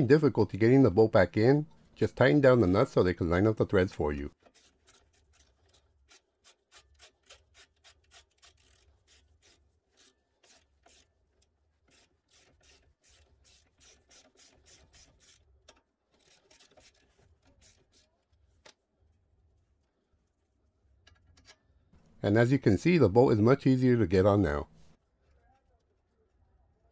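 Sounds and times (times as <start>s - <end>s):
rapid clicking of nuts tightening: 4.4s - 18.8s.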